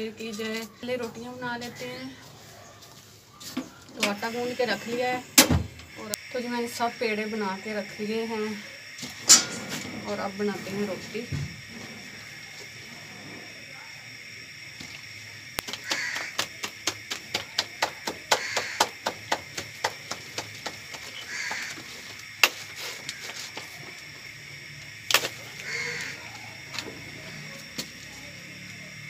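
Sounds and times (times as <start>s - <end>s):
hands slapping dough: 15.6s - 21.7s.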